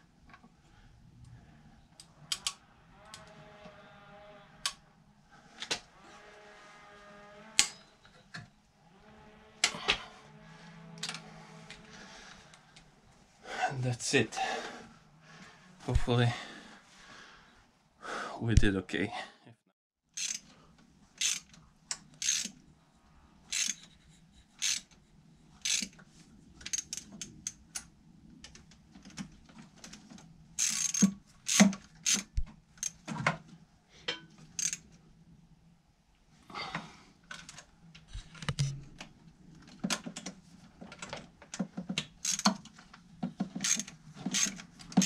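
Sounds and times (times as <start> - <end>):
hand ratchet clicking: 20.2 - 20.5, 21.2 - 22.6, 23.5 - 24.0, 24.6 - 25.0, 25.6 - 26.0, 26.6 - 27.6, 30.6 - 33.0, 34.6 - 34.8, 41.6 - 42.7, 43.4 - 45.0.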